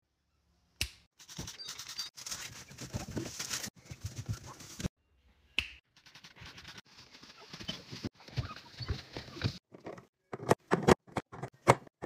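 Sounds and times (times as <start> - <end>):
plastic rustling: 1.2 - 4.9.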